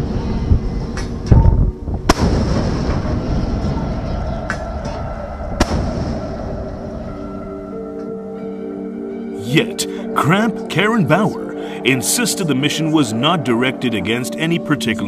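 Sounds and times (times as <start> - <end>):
low rumble: 0.0 - 8.2.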